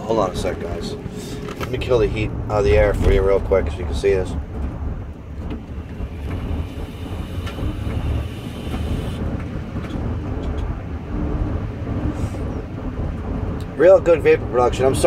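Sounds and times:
car air-conditioning fan blowing: 0.0 - 15.0
idling engine rumble: 0.0 - 15.0.

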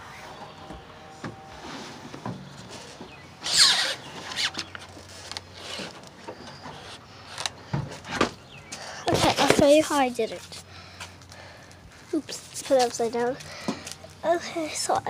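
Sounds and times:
high squeak: 3.4 - 4.6.

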